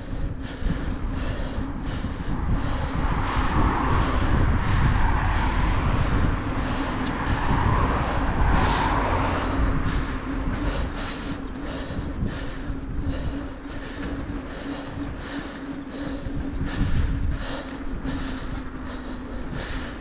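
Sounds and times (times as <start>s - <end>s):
passing vehicles road noise: 0.0s - 20.0s
wind buffeting microphone: 0.0s - 20.0s.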